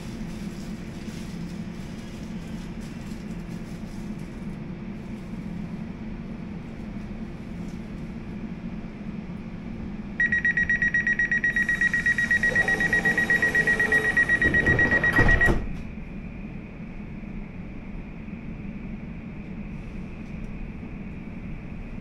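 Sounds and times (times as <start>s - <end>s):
stationary train hum: 0.0s - 22.0s
rapid high door warning beeps: 10.2s - 15.8s
train doors thudding shut: 12.5s - 16.0s.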